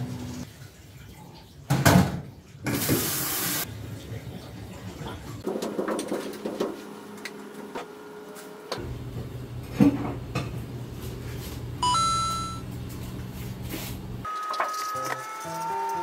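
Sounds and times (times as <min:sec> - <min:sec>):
bright ringing ding: 0:11.8 - 0:12.6
music tune: 0:11.8 - 0:12.6.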